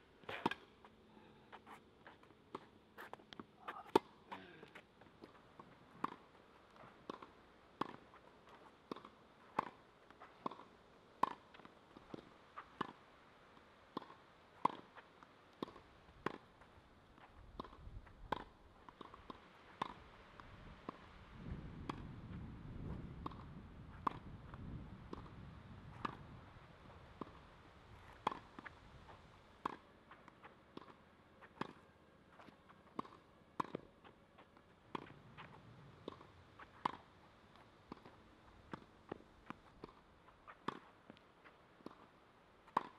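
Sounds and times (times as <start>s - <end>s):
tennis ball being hit: 28.1s - 28.7s, 42.7s - 42.9s.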